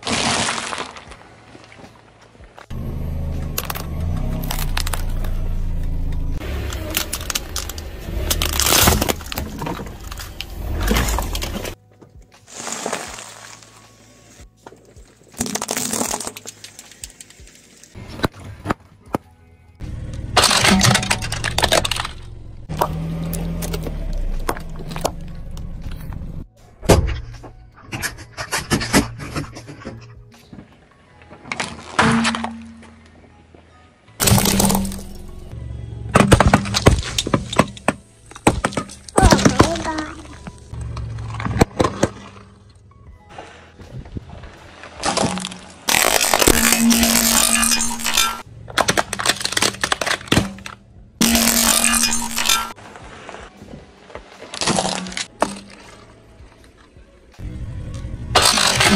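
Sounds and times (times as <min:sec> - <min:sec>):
sharp cracks under tyre: 0:00.0 - 0:01.2, 0:06.6 - 0:11.8, 0:15.4 - 0:17.6, 0:20.2 - 0:25.7, 0:40.6 - 0:42.7, 0:44.8 - 0:46.8, 0:47.4 - 0:50.8, 0:58.4 - 0:58.9
tyre crushing objects crackling: 0:00.0 - 0:02.0, 0:06.4 - 0:11.8, 0:12.4 - 0:14.1, 0:14.8 - 0:18.4, 0:44.0 - 0:56.1
car rumble: 0:02.6 - 0:11.8, 0:19.8 - 0:27.7, 0:34.2 - 0:45.1, 0:47.0 - 0:52.5.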